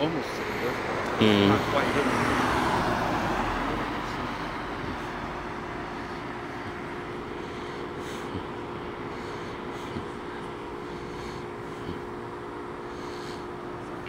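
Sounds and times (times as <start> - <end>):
car passing by: 0.8 - 6.0
quiet steady hum: 3.6 - 14.0.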